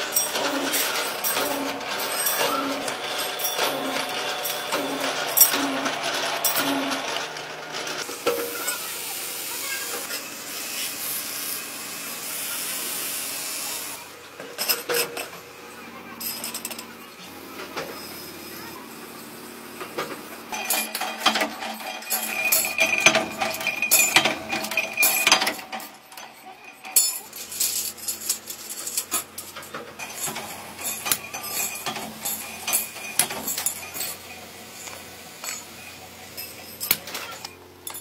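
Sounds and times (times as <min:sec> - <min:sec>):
metal rods clinking together: 0:00.0 - 0:08.9, 0:14.4 - 0:15.4, 0:16.2 - 0:16.9, 0:20.0 - 0:38.0.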